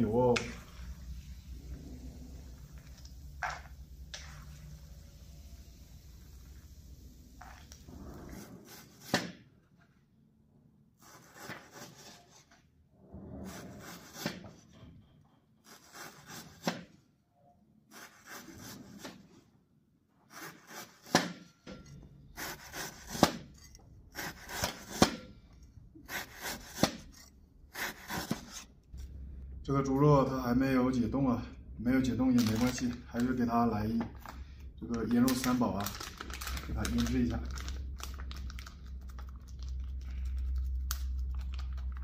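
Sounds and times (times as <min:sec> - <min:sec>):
knife sawing through frozen meat: 0:11.0 - 0:12.5, 0:13.5 - 0:14.4, 0:15.6 - 0:16.7, 0:17.9 - 0:19.2, 0:20.3 - 0:21.2, 0:22.4 - 0:25.0, 0:26.0 - 0:28.7.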